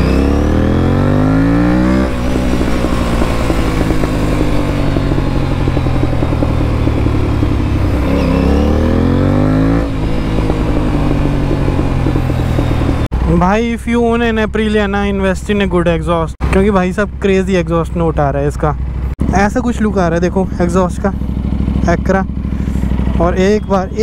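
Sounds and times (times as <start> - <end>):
motorcycle engine revving: 0.0 - 13.4, 18.8 - 24.0.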